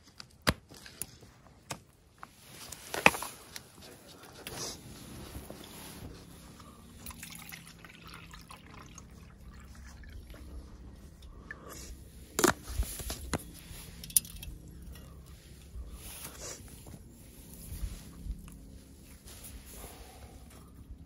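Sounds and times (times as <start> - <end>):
liquid pouring into a mug: 7.0 - 10.7.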